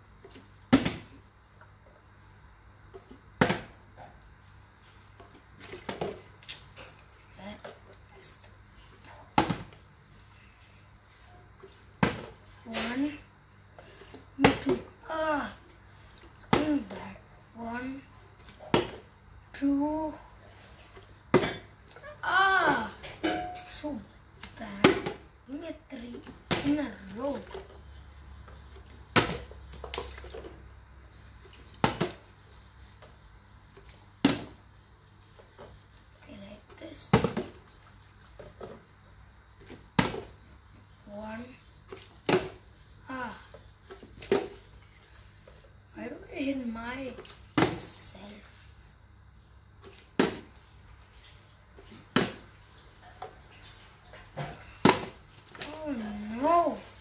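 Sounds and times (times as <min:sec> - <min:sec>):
plastic bottle thudding on tile: 0:50.2 - 0:50.5, 0:54.4 - 0:55.2.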